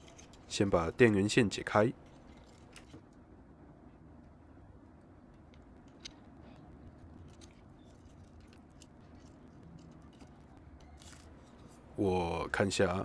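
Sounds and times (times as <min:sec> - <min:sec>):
cable rustling and clicking: 0:00.0 - 0:01.4, 0:02.0 - 0:03.2, 0:05.3 - 0:11.8.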